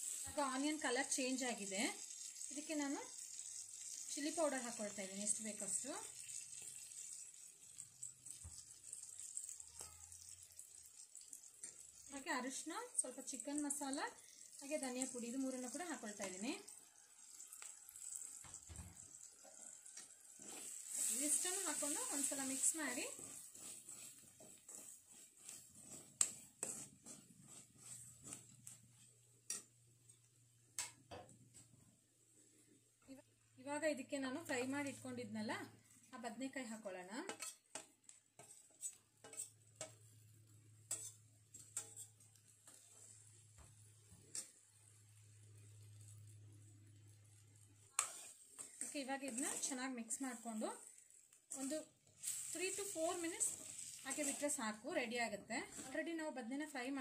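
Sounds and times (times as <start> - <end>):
onions sizzling in oil: 0.0 - 32.3, 33.0 - 57.0
ladle scraping a pan: 19.4 - 29.7, 37.3 - 37.8, 38.4 - 40.2, 40.8 - 43.4, 44.0 - 44.7, 47.8 - 54.6.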